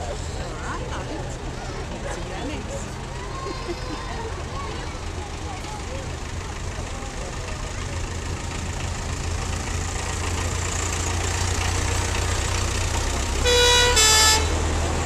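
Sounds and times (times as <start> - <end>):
heavy vehicles engine rumble: 0.0 - 15.0
vehicle horn toots: 13.4 - 14.9.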